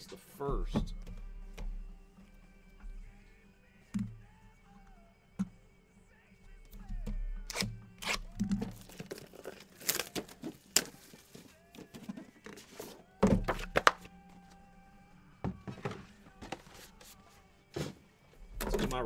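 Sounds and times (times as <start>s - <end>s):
boxes thunking on a table: 13.2s - 14.1s, 15.5s - 16.8s.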